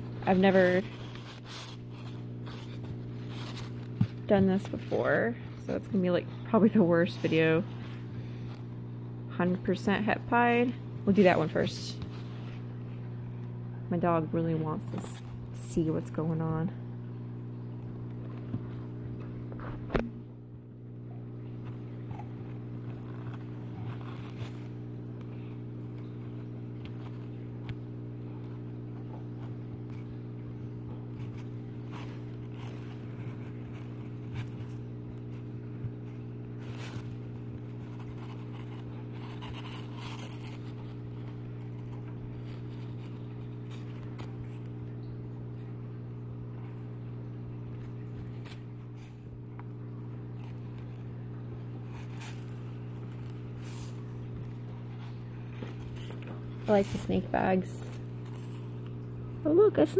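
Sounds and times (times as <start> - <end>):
cloth and paper rustling: 0.0 - 13.4, 21.6 - 59.9
steady low hum: 0.0 - 59.9.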